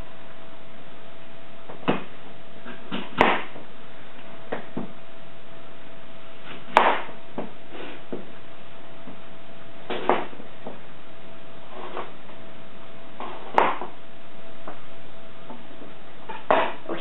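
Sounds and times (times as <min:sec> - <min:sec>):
faint steady hum: 0:00.0 - 0:17.0
knife cutting apple: 0:13.2 - 0:14.0.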